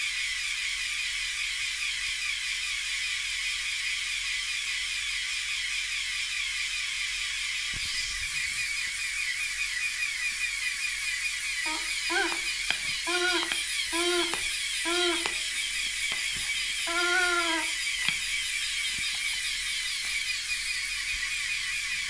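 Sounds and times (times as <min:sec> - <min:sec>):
toy air compressor whirring: 0:00.0 - 0:22.0.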